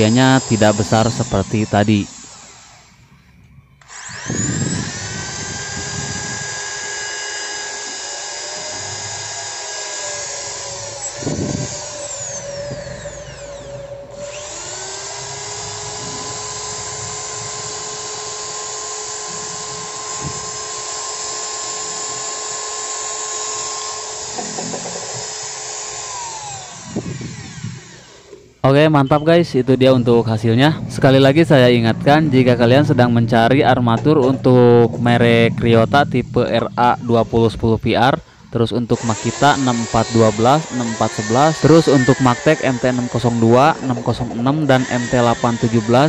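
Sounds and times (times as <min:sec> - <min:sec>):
electric drill motor running: 0:00.0 - 0:28.6, 0:39.0 - 0:46.0.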